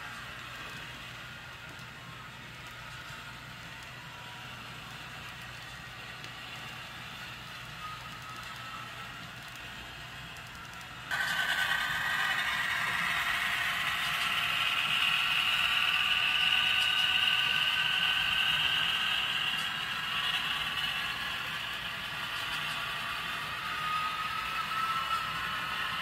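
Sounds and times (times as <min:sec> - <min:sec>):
model train motor whining: 0:10.4 - 0:26.0.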